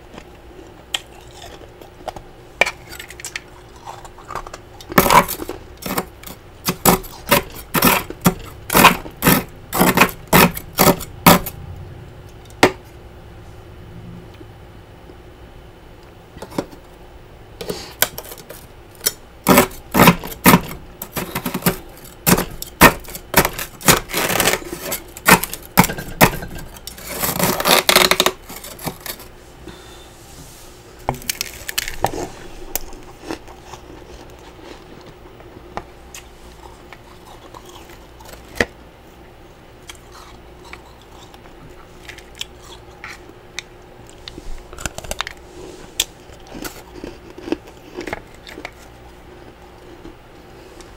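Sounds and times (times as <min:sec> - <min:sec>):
frost crunching: 0:02.6 - 0:11.5, 0:31.1 - 0:35.3
spatula scraping frost: 0:08.7 - 0:11.5, 0:26.8 - 0:29.3.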